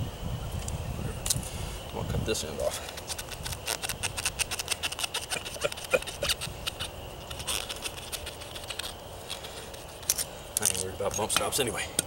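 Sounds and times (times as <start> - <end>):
blade scraping through rubber: 2.7 - 10.8.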